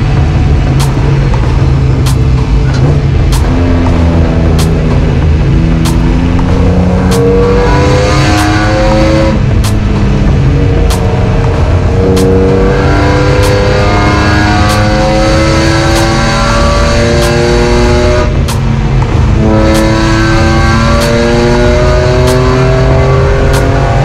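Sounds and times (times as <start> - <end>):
car engine revving: 0.0 - 24.0
light repeating tick: 2.0 - 3.5, 4.6 - 4.8, 9.6 - 9.8, 14.7 - 14.9, 15.9 - 16.2, 18.4 - 19.1.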